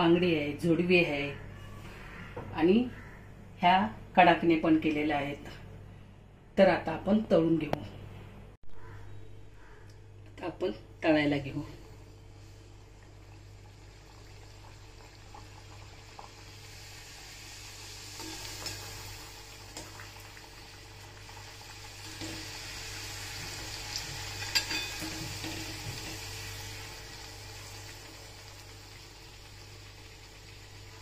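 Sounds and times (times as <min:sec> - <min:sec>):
dough deep-frying in hot oil: 0:12.3 - 0:31.0.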